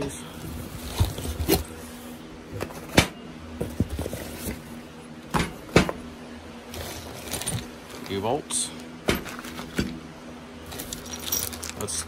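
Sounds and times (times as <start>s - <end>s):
packaging rustle: 6.7s - 8.3s, 9.2s - 9.8s, 10.7s - 12.0s.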